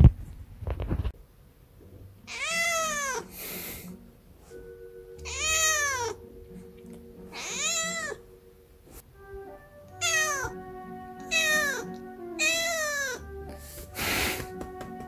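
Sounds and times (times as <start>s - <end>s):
cat meowing: 2.3s - 3.3s, 5.2s - 6.2s, 7.3s - 8.2s, 9.9s - 10.6s, 11.2s - 13.3s.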